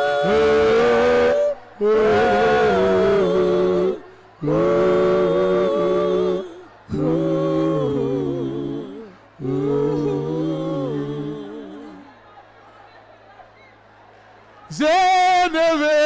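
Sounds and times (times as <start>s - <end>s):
man singing unaccompanied: 0.0s - 12.0s, 14.7s - 16.0s
breath: 4.1s - 4.3s.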